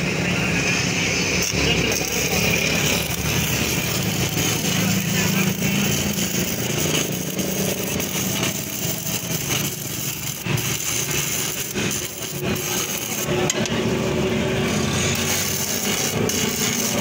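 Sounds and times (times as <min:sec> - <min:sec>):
welding arc crackling: 0:00.5 - 0:17.0.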